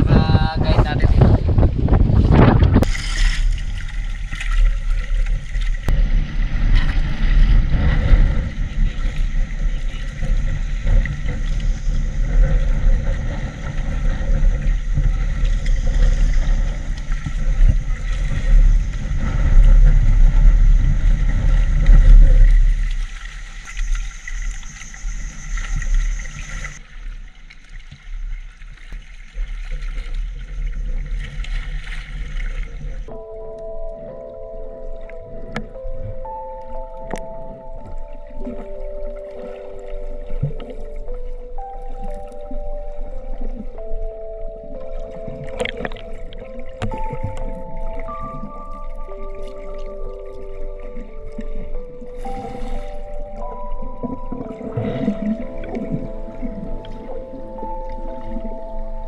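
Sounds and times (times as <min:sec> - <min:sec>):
heavy wind: 0:00.0 - 0:26.8
boat engine running: 0:00.0 - 0:27.0, 0:29.8 - 0:59.0
water noise: 0:00.0 - 0:59.0.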